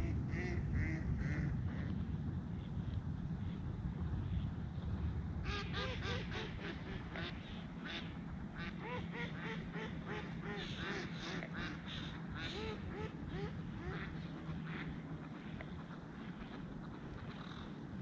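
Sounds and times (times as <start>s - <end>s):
low steady rumble: 0.0s - 18.0s
ducks quacking: 5.4s - 17.8s.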